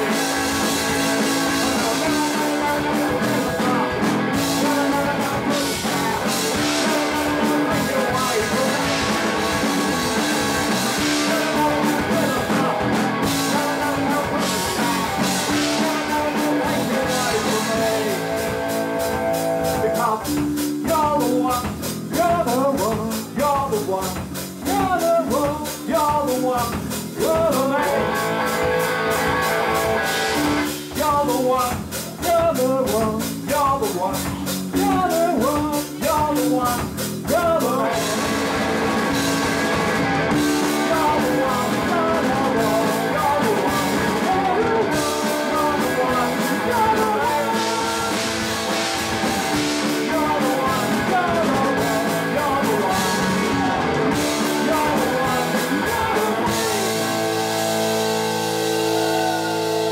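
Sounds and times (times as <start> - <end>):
fast drum beats: 0.0 - 59.9
punk rock band playing: 0.0 - 59.9
singing: 1.5 - 9.7, 11.0 - 28.2, 40.3 - 57.9.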